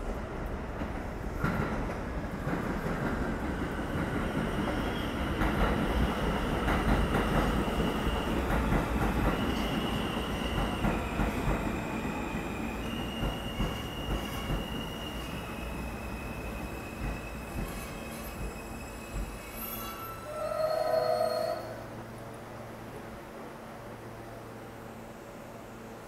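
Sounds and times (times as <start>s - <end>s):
train wheels rumbling on rails: 0.0s - 21.8s
high-pitched wheel squeal: 17.2s - 21.9s.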